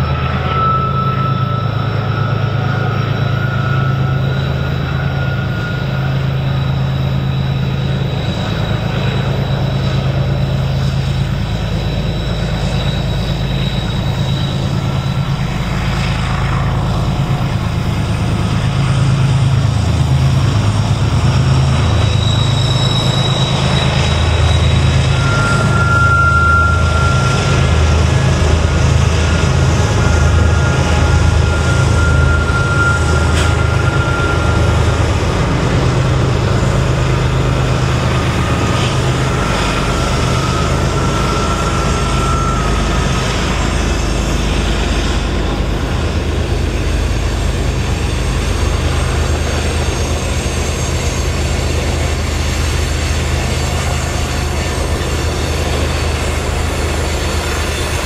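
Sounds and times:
diesel locomotive engines droning: 0:00.0 - 0:58.0
freight cars rolling by: 0:00.0 - 0:58.0
thin high whine: 0:00.0 - 0:58.0.

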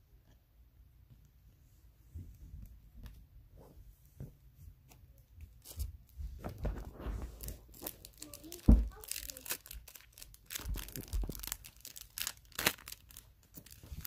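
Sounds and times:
foil wrapper tearing and crinkling: 0:07.4 - 0:14.0.

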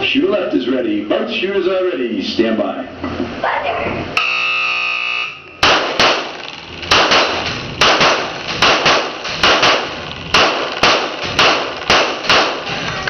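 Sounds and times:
handgun shots echoing indoors: 0:05.6 - 0:12.7.

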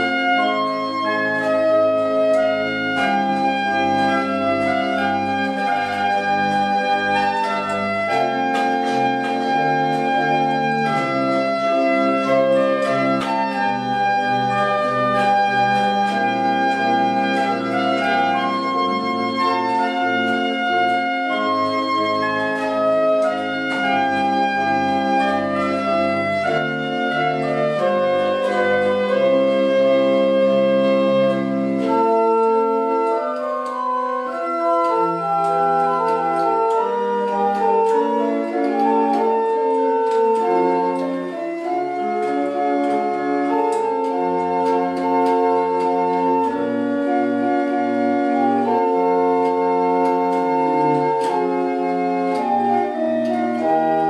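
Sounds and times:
deep organ pedal bass: 0:00.0 - 0:54.0
pipe organ chords: 0:00.0 - 0:54.0.

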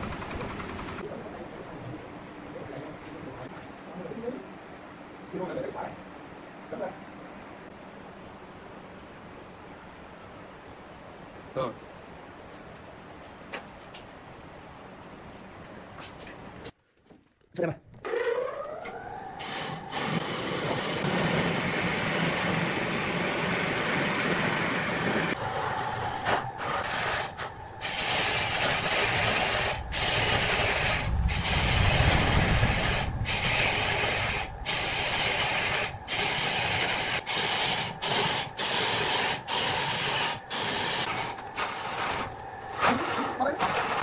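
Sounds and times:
lathe motor hum: 0:18.1 - 0:44.0
tool scraping spinning wood: 0:19.4 - 0:44.0.

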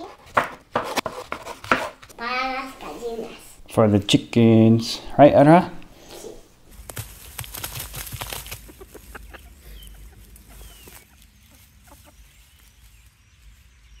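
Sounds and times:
hens pecking: 0:05.7 - 0:13.9
hens clucking: 0:05.8 - 0:12.9
soft thuds on dry grass: 0:06.7 - 0:08.8.

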